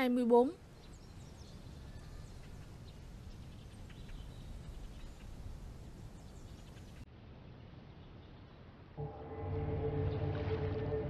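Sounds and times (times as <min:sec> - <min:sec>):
birds chirping: 0:00.7 - 0:07.0.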